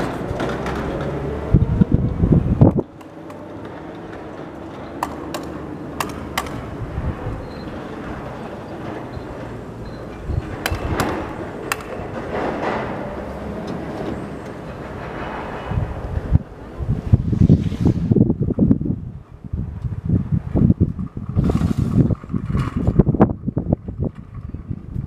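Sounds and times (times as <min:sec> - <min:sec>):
engine humming: 0:00.0 - 0:17.4.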